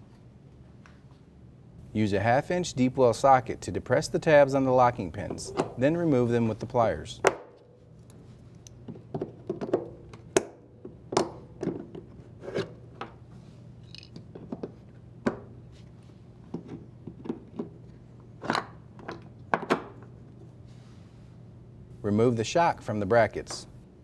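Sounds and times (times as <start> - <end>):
low steady hum: 0.0 - 24.0
tools clicking and clinking: 13.8 - 14.3.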